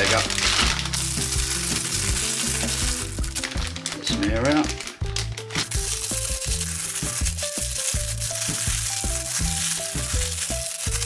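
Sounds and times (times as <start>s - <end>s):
background music with bass line: 0.0s - 11.0s
plastic bag crinkling: 0.0s - 11.0s.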